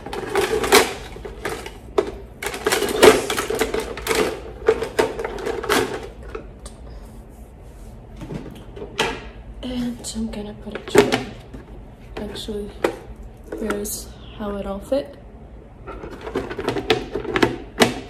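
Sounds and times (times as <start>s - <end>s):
plastic toy dishes clattering: 0.0s - 6.5s, 15.9s - 18.0s.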